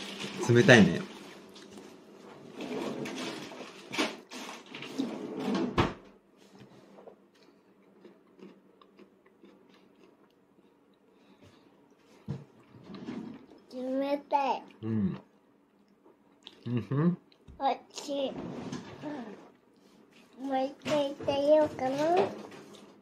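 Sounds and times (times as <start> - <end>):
household rustling: 0.0 - 7.2, 18.1 - 23.0.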